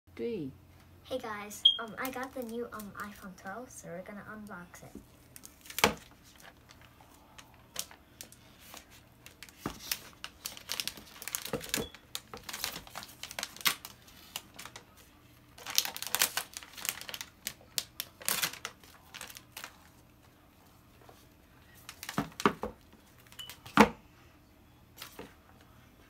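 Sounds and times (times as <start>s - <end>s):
plastic wrapping crinkling and tearing: 1.8s - 3.3s, 5.2s - 20.5s, 21.7s - 23.6s.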